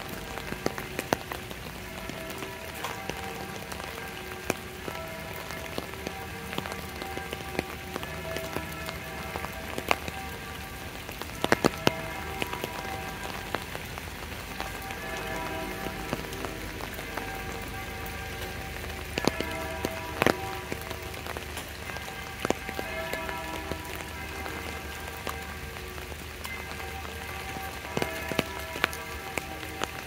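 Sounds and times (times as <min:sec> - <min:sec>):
close raindrop impacts: 0:00.0 - 0:30.0
faint music with held notes: 0:00.0 - 0:30.0
steady rain falling: 0:00.0 - 0:30.0.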